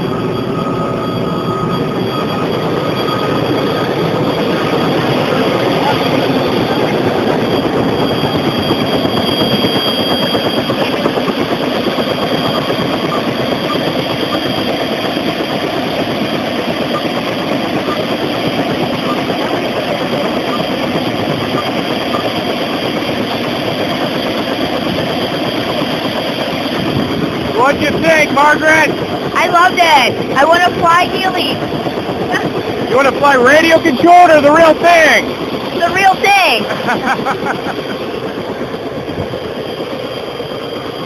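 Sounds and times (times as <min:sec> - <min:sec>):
faint high whine: 0:00.0 - 0:15.1
loud engine noise: 0:00.0 - 0:41.0.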